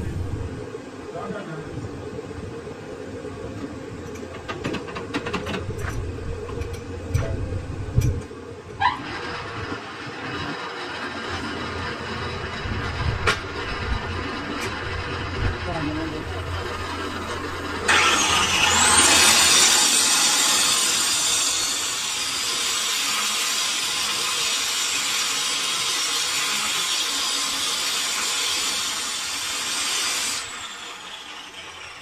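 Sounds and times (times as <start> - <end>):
motor whine spinning down: 0.0 - 0.6, 5.6 - 22.6
power tool grinding metal: 8.8 - 32.0.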